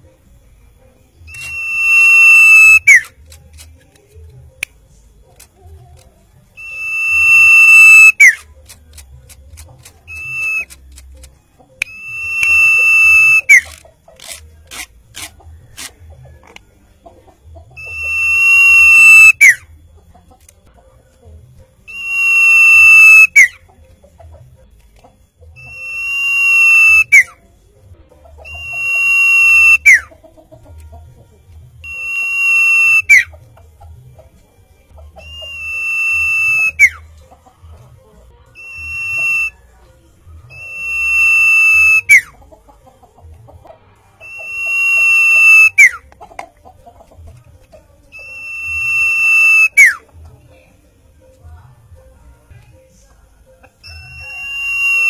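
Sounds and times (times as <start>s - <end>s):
bird whistling: 1.2s - 3.2s, 6.5s - 8.5s, 9.8s - 13.8s, 17.7s - 19.6s, 21.8s - 23.6s, 25.6s - 27.4s, 28.4s - 30.1s, 31.8s - 33.4s, 35.1s - 37.0s, 38.6s - 39.7s, 40.5s - 42.4s, 44.2s - 46.2s, 48.1s - 50.1s, 53.8s - 55.0s.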